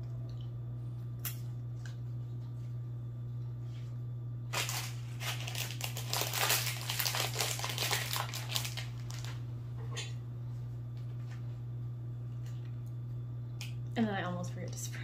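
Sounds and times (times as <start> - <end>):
plastic pouch crinkling: 4.5 - 9.4.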